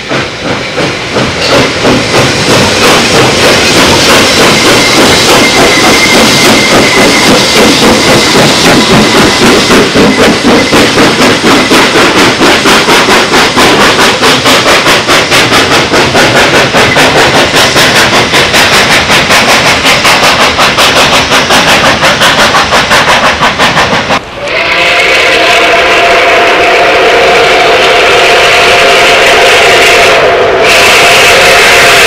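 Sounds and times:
steam locomotive chuffing: 0.0s - 32.0s
steam whistle chord: 24.3s - 32.0s.

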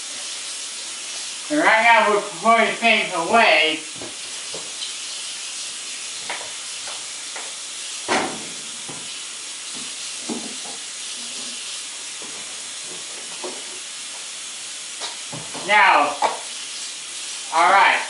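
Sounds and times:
kitchen items knocking on counter: 9.8s - 10.8s.

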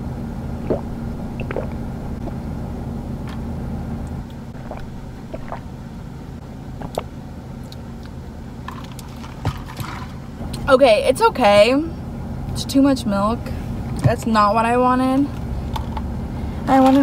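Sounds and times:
car cabin hum: 0.5s - 7.4s.

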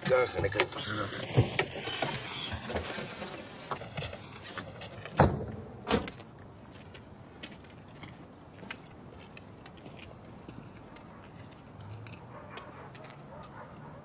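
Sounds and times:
car doors slamming shut: 5.2s - 6.1s.

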